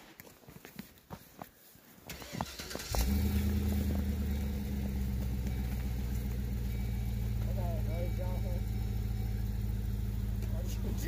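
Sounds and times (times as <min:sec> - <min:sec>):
engine running with low hum: 0:02.2 - 0:11.0.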